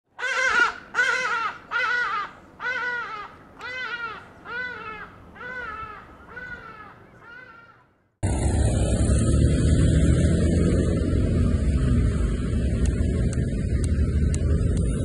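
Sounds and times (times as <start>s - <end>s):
ibis calling harshly: 0.2s - 7.9s.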